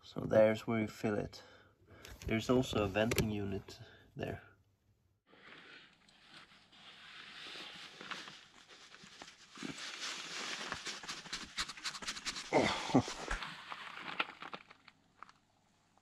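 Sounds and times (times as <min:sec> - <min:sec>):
person breathing heavily: 0:12.5 - 0:13.4.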